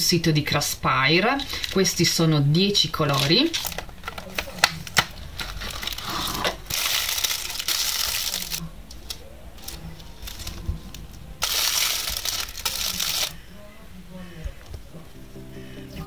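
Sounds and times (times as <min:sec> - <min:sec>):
plastic wrap crinkling: 0:01.2 - 0:13.4.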